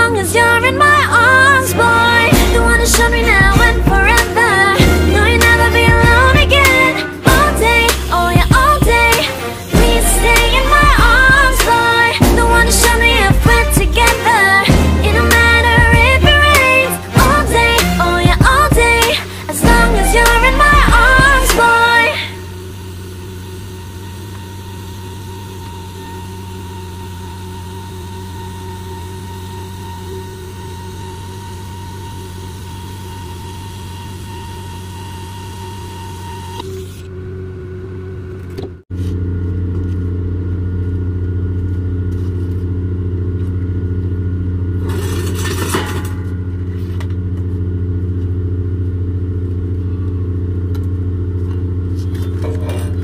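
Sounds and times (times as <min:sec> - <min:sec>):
low machine hum: 0:00.0 - 0:53.0
welding arc hissing: 0:01.3 - 0:37.1.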